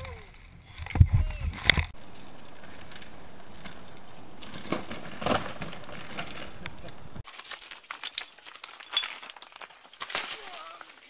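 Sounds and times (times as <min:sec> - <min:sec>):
bike crash thuds and rattle: 0:02.7 - 0:06.7.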